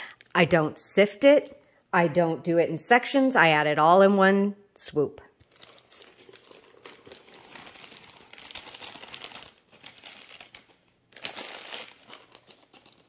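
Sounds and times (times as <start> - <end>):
paper bag crinkling and rustling: 5.4 - 13.0.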